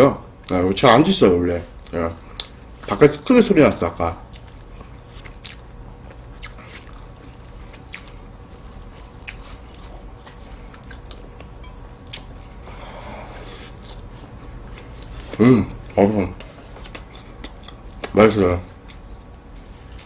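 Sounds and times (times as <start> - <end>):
pastry crackling: 1.9 - 19.4
close-up chewing: 3.9 - 19.4.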